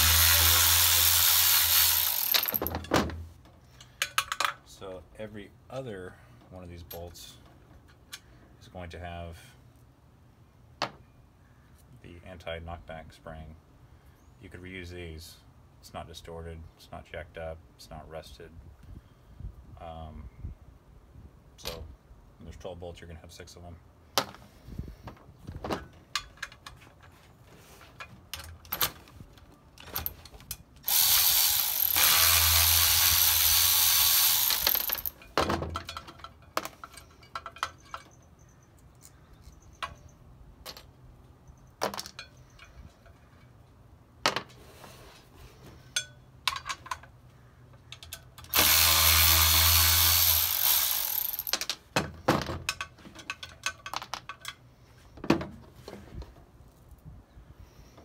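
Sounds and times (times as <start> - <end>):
cordless power ratchet running: 0.0 - 2.6, 30.8 - 35.2, 48.5 - 51.5
small metal parts clinking: 0.3 - 2.9, 29.8 - 40.0, 47.9 - 51.8, 52.6 - 54.7.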